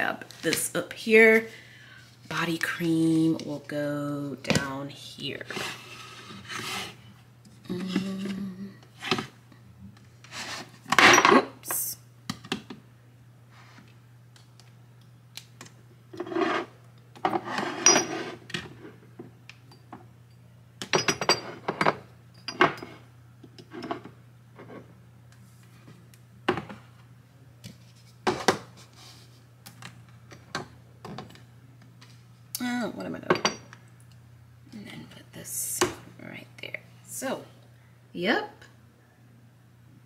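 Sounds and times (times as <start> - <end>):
faint low hum: 0.0 - 40.0
bottles scraping on shelf: 5.4 - 7.0, 16.2 - 18.4.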